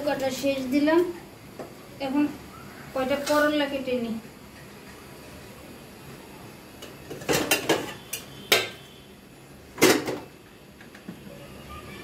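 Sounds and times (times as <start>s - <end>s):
metal dishes clanking: 7.1s - 8.8s.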